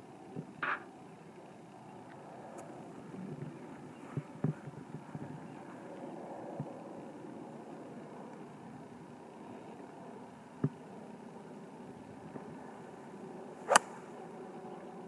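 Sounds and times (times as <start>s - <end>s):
low background noise: 0.0s - 15.0s
golf club striking ball: 13.6s - 14.2s.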